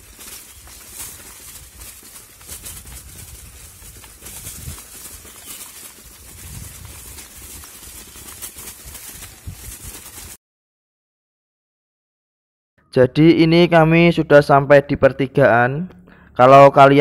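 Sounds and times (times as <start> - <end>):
bike rattles and clicks: 0.0 - 10.4
bike tyres rumbling: 0.0 - 10.4.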